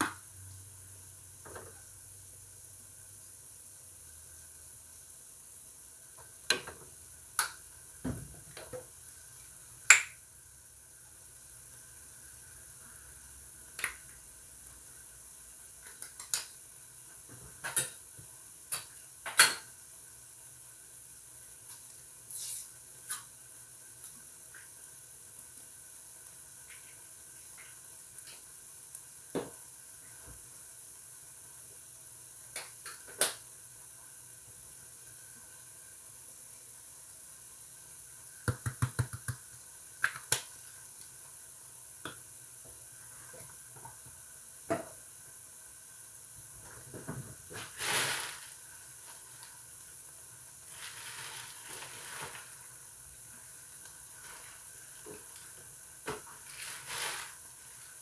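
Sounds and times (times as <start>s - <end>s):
meat sizzling in a skillet: 17.7s - 38.4s, 47.4s - 58.0s
sharp clicks and taps: 38.4s - 40.5s
rustle: 47.5s - 49.5s, 50.6s - 52.6s, 56.3s - 58.0s.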